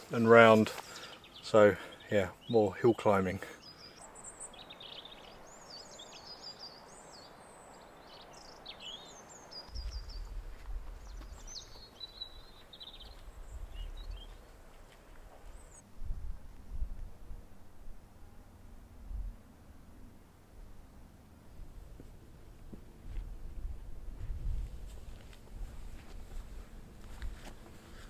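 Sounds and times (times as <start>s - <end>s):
small songbirds chirping: 0.0s - 15.8s.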